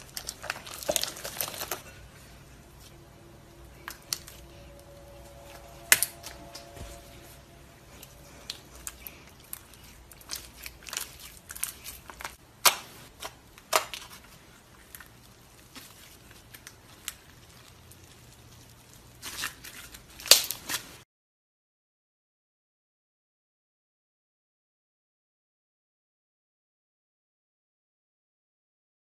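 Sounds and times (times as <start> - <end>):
slime squished by hand: 0.0 - 7.2, 7.9 - 21.0.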